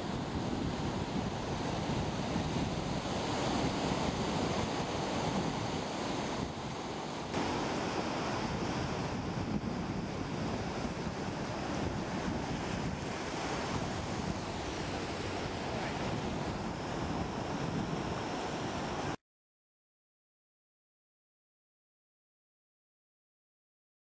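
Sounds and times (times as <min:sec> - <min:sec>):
wind buffeting microphone: 0:00.0 - 0:19.2
surf breaking over rocks: 0:01.9 - 0:19.2.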